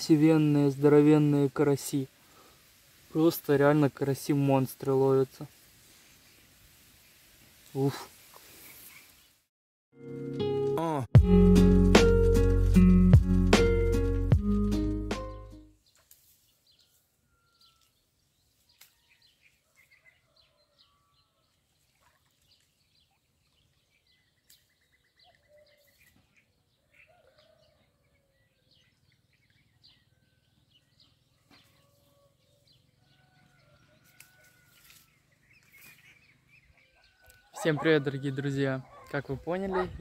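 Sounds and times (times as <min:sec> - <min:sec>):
bird calls: 0:18.6 - 0:40.0.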